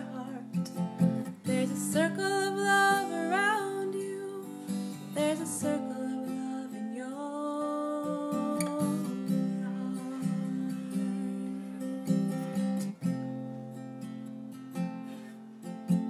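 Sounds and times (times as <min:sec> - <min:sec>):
person singing: 0:00.0 - 0:12.6
strummed acoustic guitar: 0:00.0 - 0:16.0.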